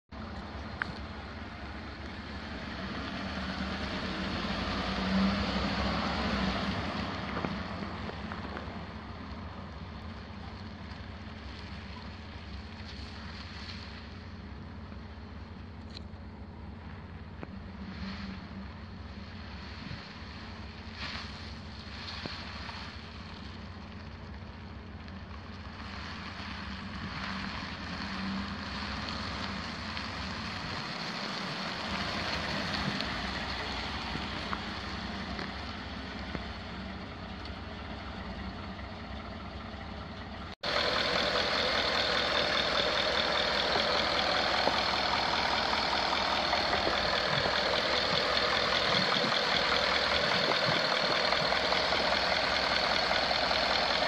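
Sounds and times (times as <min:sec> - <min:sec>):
truck engine idling: 0:00.0 - 0:54.0.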